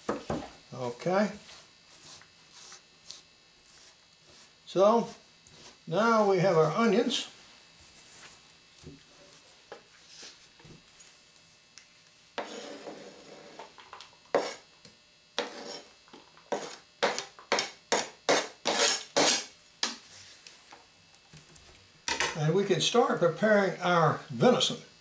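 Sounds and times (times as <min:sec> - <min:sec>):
onion scraped off cutting board: 0:12.4 - 0:13.6, 0:14.3 - 0:14.7, 0:15.4 - 0:16.8, 0:18.3 - 0:19.6.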